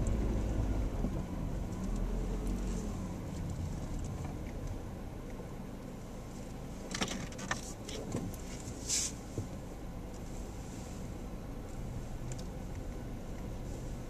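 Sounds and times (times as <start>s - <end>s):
car tyres rumbling on dirt: 0.0s - 14.0s
short hiss: 8.8s - 9.2s.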